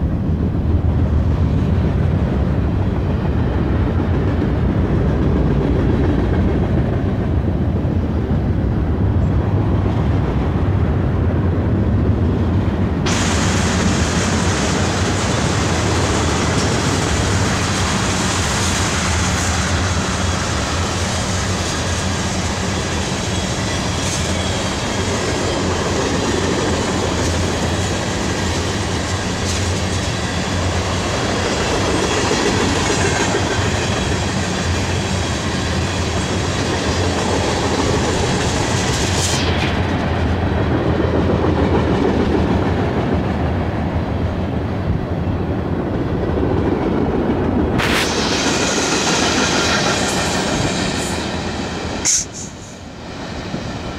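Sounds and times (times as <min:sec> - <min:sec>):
freight train rumbling past: 0:00.0 - 0:53.9
steel wheels clattering on rails: 0:13.1 - 0:43.4.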